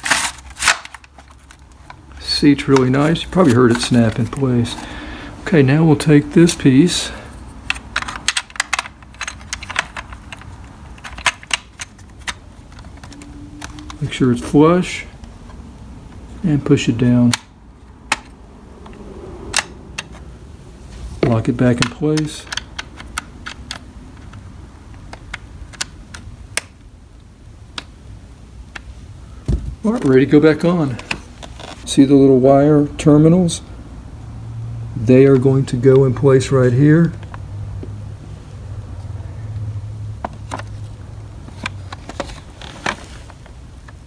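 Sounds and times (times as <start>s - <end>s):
hard plastic parts clicking: 0.0s - 14.5s, 17.0s - 20.3s, 21.2s - 26.8s, 28.6s - 31.8s, 41.4s - 44.0s.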